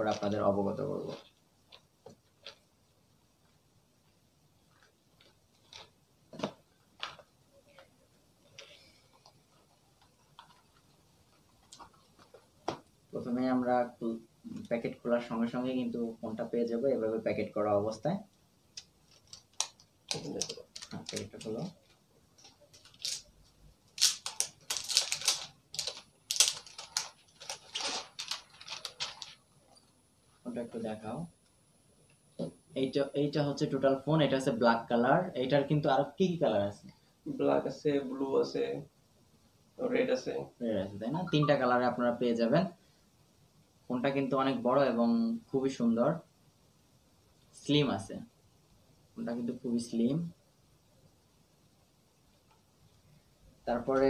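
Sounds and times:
plastic packaging crinkling: 0.0s - 2.7s, 4.7s - 12.7s, 18.8s - 29.8s.

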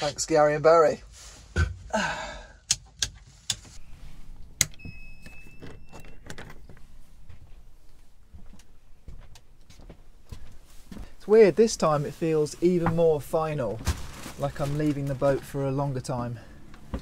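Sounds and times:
switches clicking: 4.6s - 4.9s.

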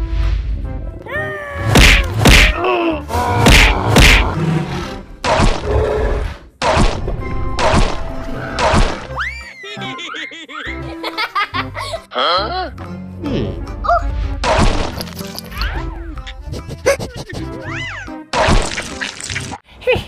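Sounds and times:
background music: 0.0s - 19.6s
cartoon thuds and whacks: 1.6s - 2.6s, 3.3s - 4.4s, 5.2s - 5.7s, 6.6s - 8.0s, 8.6s - 9.1s, 14.4s - 15.1s, 18.3s - 19.0s.

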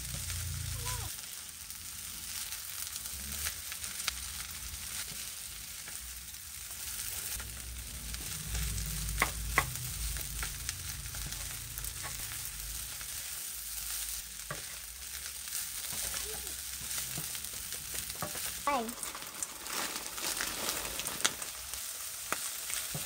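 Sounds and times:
rice sizzling in a wok: 0.0s - 23.0s
wooden spatula scraping a wok: 11.2s - 21.8s.

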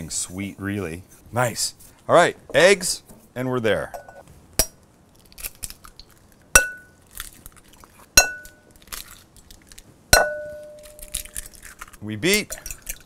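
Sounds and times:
eggshell crackle: 4.9s - 9.9s, 10.6s - 13.0s
eggs knocking on glass bowl: 10.2s - 10.8s.

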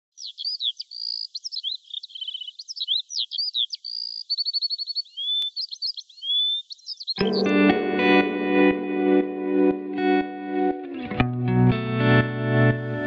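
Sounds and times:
songbird singing: 0.0s - 8.0s.

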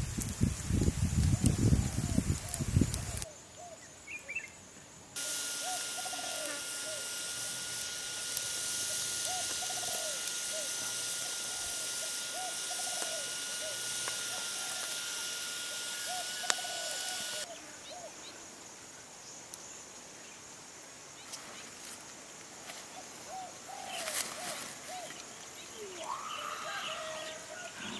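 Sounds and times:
high-pitched insect drone: 0.0s - 3.4s, 5.2s - 18.2s, 23.2s - 27.9s
sharp clicks: 5.2s - 17.5s
bird calling: 5.2s - 18.1s, 23.2s - 27.9s.

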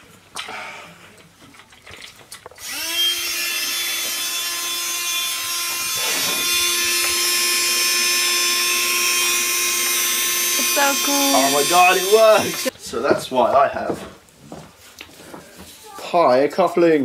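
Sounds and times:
small electric motor whirring: 2.6s - 12.7s.

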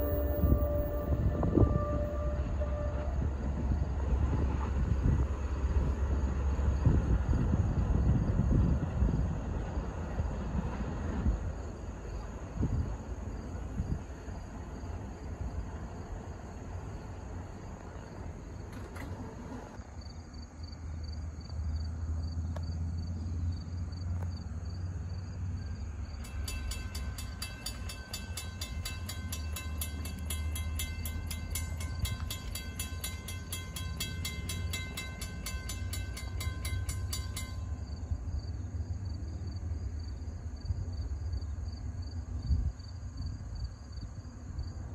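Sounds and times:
train horn: 0.0s - 5.3s
diesel locomotive rumble: 0.0s - 43.6s.

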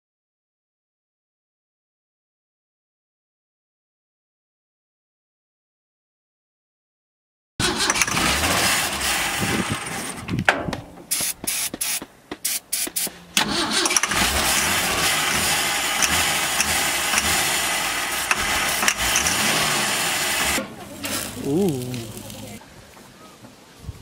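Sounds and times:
truck engine cranking: 7.6s - 11.7s, 12.9s - 22.6s.

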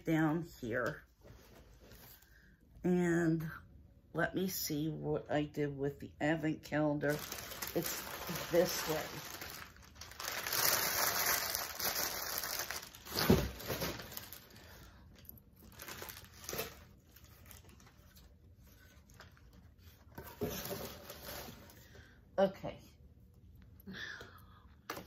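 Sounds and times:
paper and packaging rustling: 7.0s - 21.9s.

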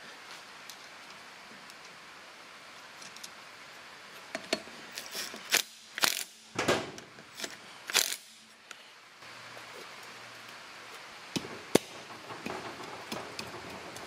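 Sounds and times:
rain on a metal roof: 9.2s - 14.0s.

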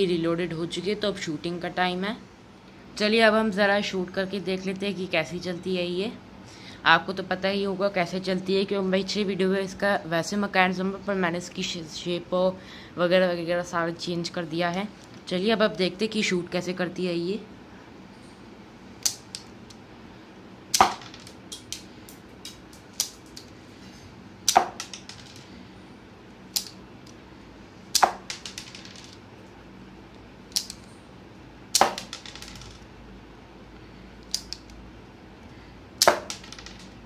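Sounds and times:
toy pistol plastic snaps: 19.0s - 19.5s, 23.0s - 23.5s, 26.5s - 26.8s, 30.5s - 30.8s, 34.2s - 34.8s.

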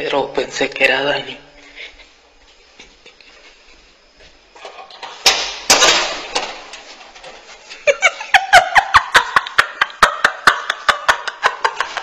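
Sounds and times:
rapid rhythmic laughter: 7.8s - 12.0s.

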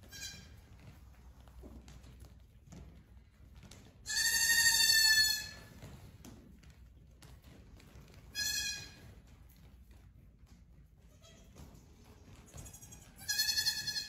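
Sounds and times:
goat kids bleating: 0.0s - 0.6s, 4.1s - 5.6s, 8.3s - 9.0s, 12.4s - 14.0s
hoof taps on concrete: 0.0s - 14.0s.

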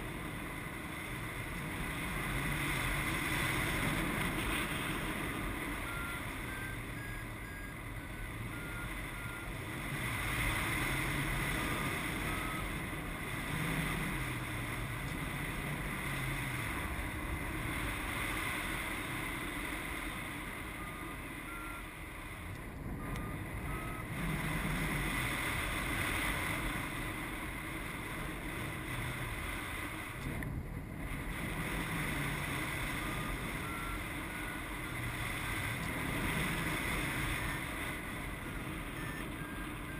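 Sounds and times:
faint short electronic beeps: 4.0s - 9.8s, 10.7s - 13.0s, 20.6s - 24.8s, 33.0s - 35.0s, 35.8s - 39.9s.

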